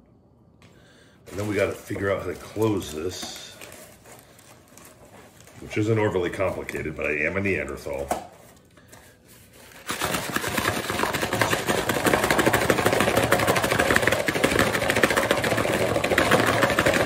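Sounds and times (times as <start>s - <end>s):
food rattling in cardboard box: 1.3s - 6.8s, 9.6s - 17.0s.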